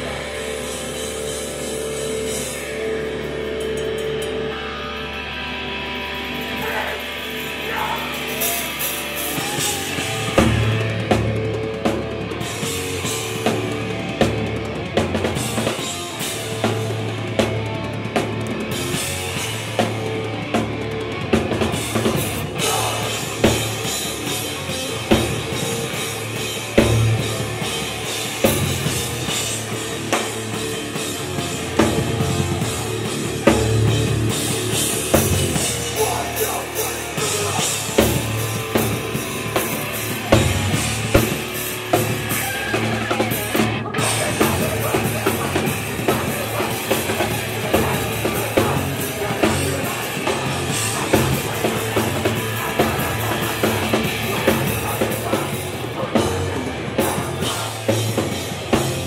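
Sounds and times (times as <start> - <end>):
punk band playing live: 0.0 - 59.0
loud drum kit hits: 31.7 - 42.5.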